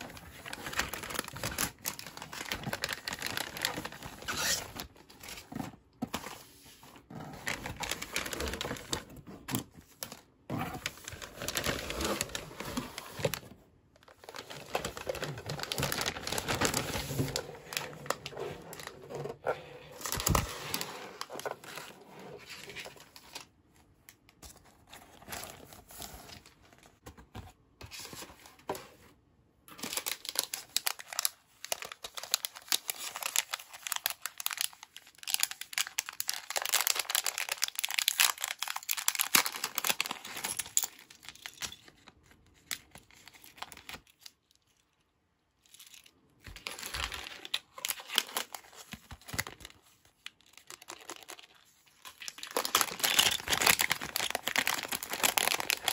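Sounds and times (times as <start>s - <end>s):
plastic bags crinkling: 0.0s - 6.4s, 7.1s - 21.9s, 29.7s - 42.2s, 45.7s - 55.9s.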